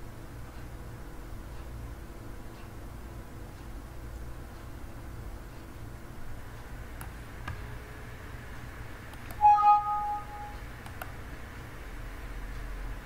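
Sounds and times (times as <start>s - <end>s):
steady low hum: 0.0s - 13.0s
two-tone alert chime: 9.4s - 10.6s
faint mouse clicks: 10.8s - 11.2s.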